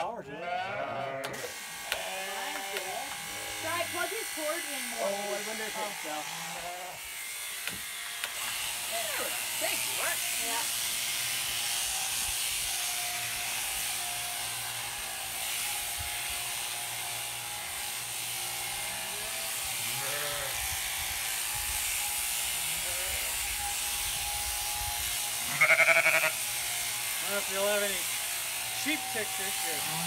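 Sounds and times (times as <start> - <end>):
sheep bleating: 0.3 - 4.1, 4.9 - 7.1, 18.6 - 20.7, 22.5 - 23.7, 25.4 - 26.8, 29.6 - 30.0
electric shears humming: 0.8 - 30.0.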